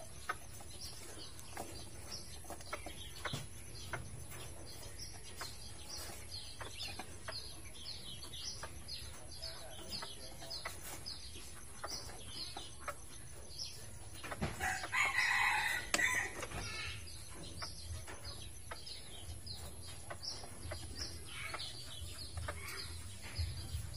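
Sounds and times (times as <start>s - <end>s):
rooster crowing: 14.6s - 16.4s.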